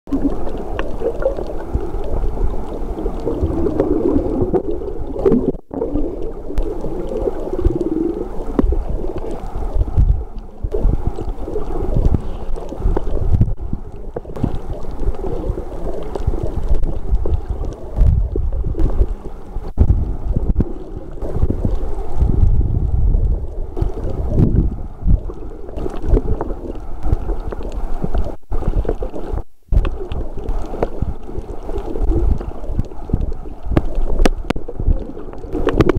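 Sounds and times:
underwater rumble and gurgling: 0:00.1 - 0:35.9.

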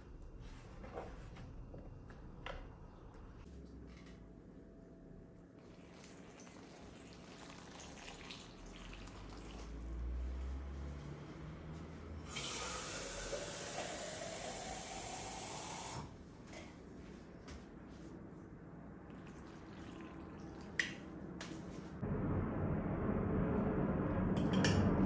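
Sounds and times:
water pouring into glass bowl: 0:05.6 - 0:09.8, 0:19.1 - 0:20.7
water dripping: 0:05.6 - 0:09.9, 0:19.1 - 0:21.0.

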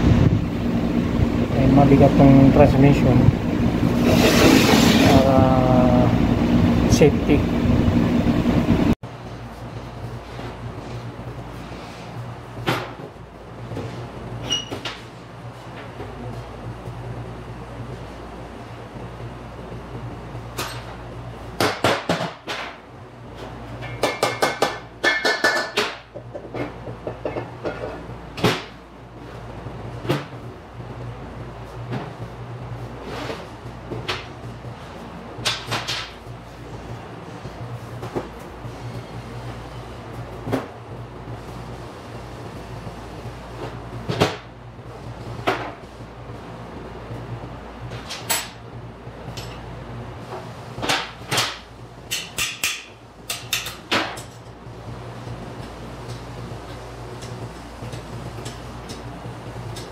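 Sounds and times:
low hum: 0:00.0 - 0:09.0.

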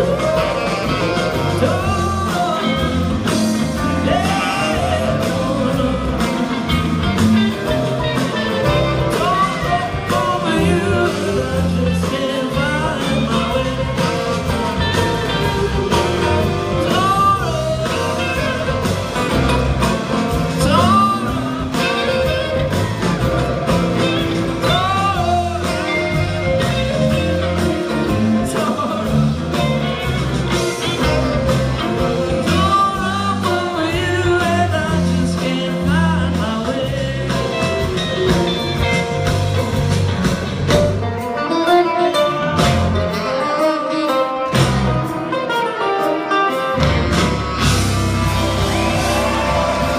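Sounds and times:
lead vocal singing: 0:00.0 - 0:07.0, 0:07.9 - 0:38.6, 0:47.6 - 0:49.9
live band playing: 0:00.0 - 0:49.9.

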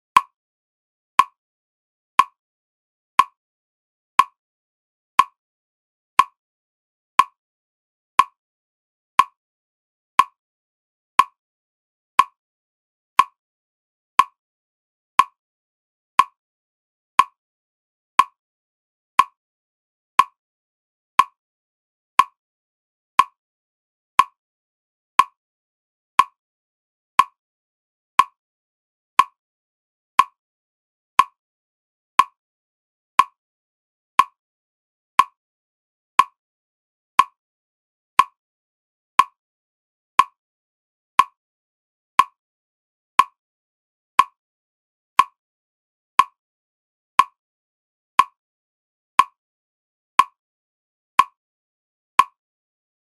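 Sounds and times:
clock-like ticks: 0:13.2 - 0:13.4, 0:29.2 - 0:29.4, 0:30.2 - 0:30.4, 0:33.2 - 0:33.4, 0:45.2 - 0:45.4.

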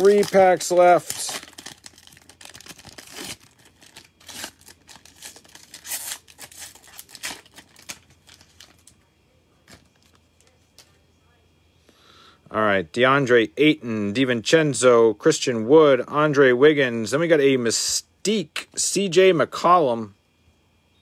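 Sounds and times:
plastic wrapper tearing and crinkling: 0:00.0 - 0:09.0.

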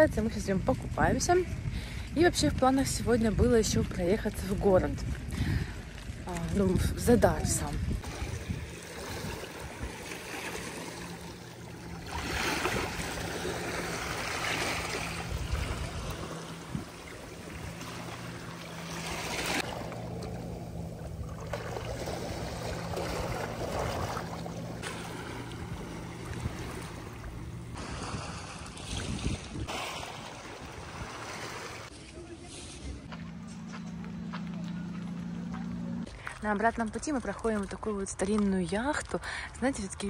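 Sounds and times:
wind buffeting microphone: 0:00.0 - 0:10.3, 0:11.8 - 0:18.6, 0:20.6 - 0:31.9
low steady hum: 0:00.0 - 0:28.9
waves washing: 0:05.6 - 0:33.1.

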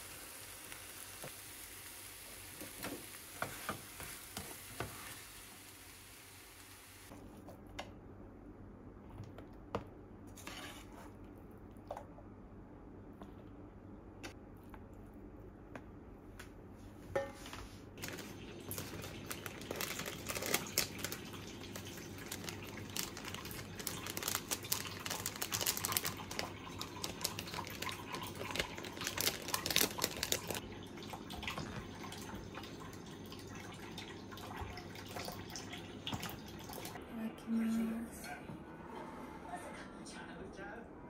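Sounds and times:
plastic bag crinkling: 0:18.0 - 0:30.6.

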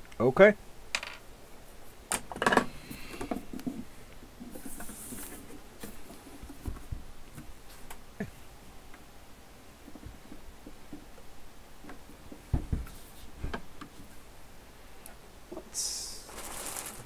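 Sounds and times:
scraping hiss: 0:15.7 - 0:17.0.

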